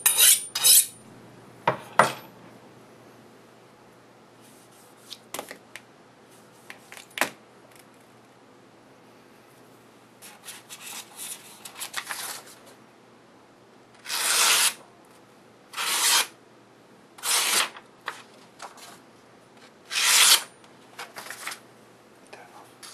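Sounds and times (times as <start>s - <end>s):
paper rustling: 10.2s - 12.7s, 17.6s - 19.0s, 21.0s - 21.6s
knife slicing paper: 14.0s - 14.8s, 15.8s - 16.4s, 17.2s - 17.8s, 19.9s - 20.5s.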